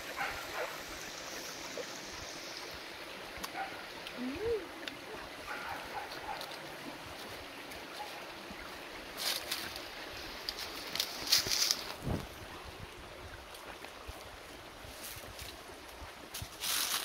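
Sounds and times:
stream running over rocks: 0.0 - 17.0.

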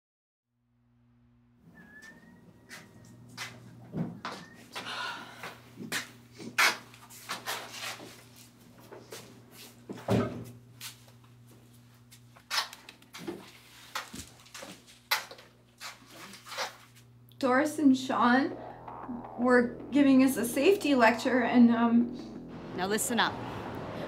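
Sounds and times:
steady low hum: 16.8 - 24.0.

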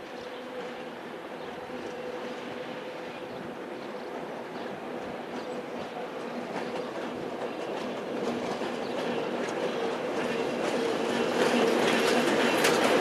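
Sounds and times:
diesel locomotive engine hum: 0.0 - 13.0
wheels clicking on rail joints: 3.8 - 13.0.

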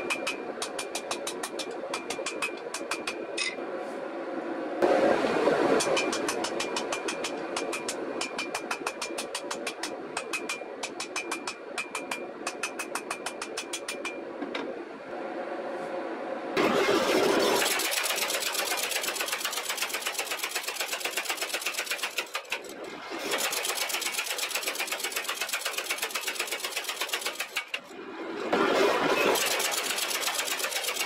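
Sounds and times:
power hammer pounding: 5.8 - 13.9.

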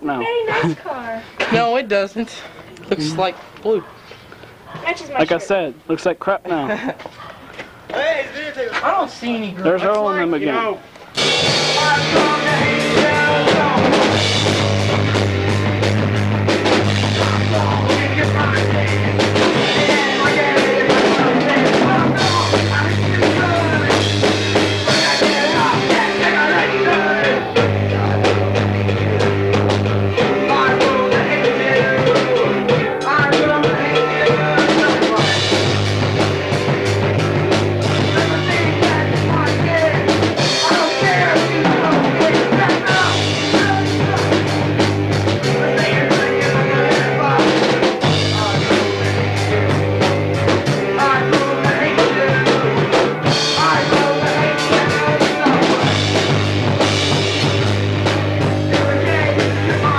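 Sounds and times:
drum kit beat: 3.0 - 3.9, 11.0 - 59.9
electric guitar: 10.9 - 59.9
bass guitar: 11.1 - 59.9
man singing into a microphone: 11.6 - 14.2, 17.0 - 24.2, 24.8 - 29.3, 30.2 - 35.8, 37.9 - 44.5, 45.4 - 49.7, 50.8 - 56.4, 58.7 - 59.9.

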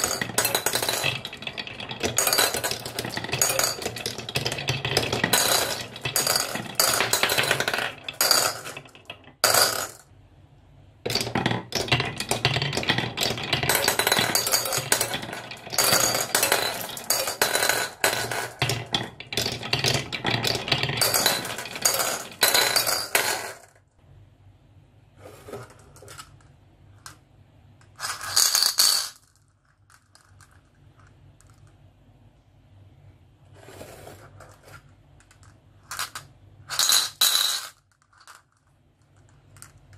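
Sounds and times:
glass marbles rolling on wooden tracks: 0.0 - 10.0, 11.1 - 23.6
marbles clinking into bowls: 0.0 - 10.0, 11.1 - 23.7, 28.0 - 30.6, 35.2 - 38.6.

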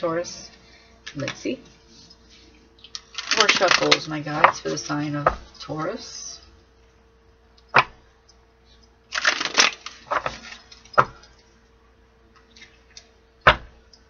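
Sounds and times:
cards being shuffled: 2.9 - 5.0.

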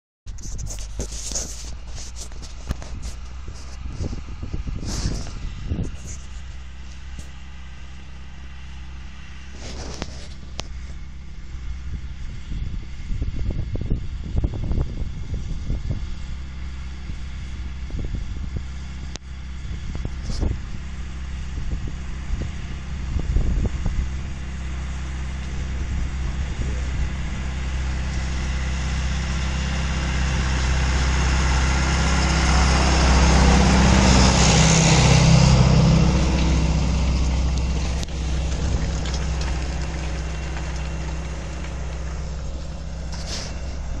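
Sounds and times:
wind knocking on microphone: 0.3 - 7.3, 33.1 - 44.0
tractor diesel engine under load: 0.3 - 44.0.

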